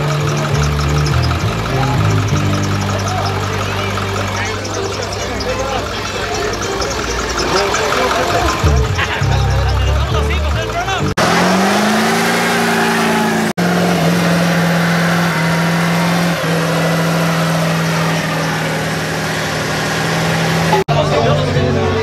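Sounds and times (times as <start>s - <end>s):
engine at high revs: 0.0s - 21.6s.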